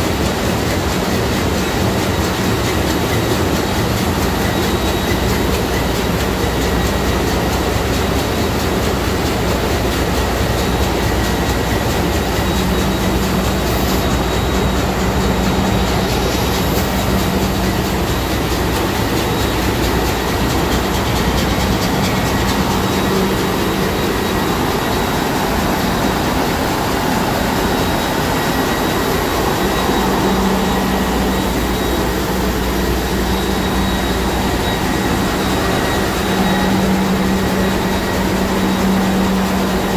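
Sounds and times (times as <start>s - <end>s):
diesel engine running: 0.1s - 39.9s
high whine: 10.6s - 39.9s.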